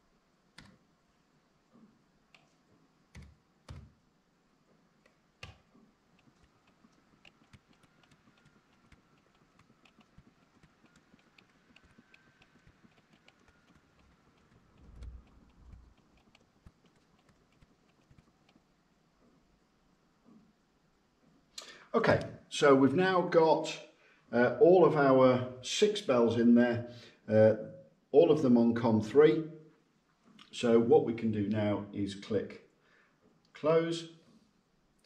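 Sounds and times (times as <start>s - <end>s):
faint steady whine: 0.0s - 35.0s
keyboard typing: 3.1s - 4.0s, 5.0s - 18.7s
mouse clicks: 5.0s - 18.6s.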